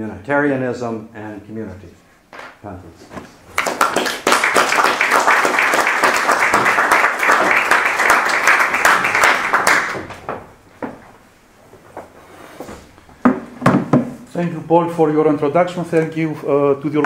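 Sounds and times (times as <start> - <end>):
audience applauding: 3.5 - 10.3.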